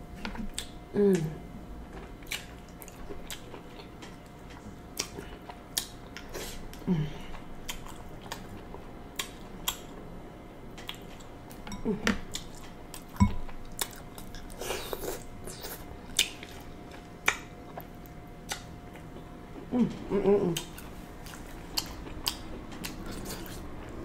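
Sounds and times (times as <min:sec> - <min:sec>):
chewing and lip smacks: 0:02.2 - 0:10.0, 0:12.3 - 0:19.7, 0:20.5 - 0:24.0.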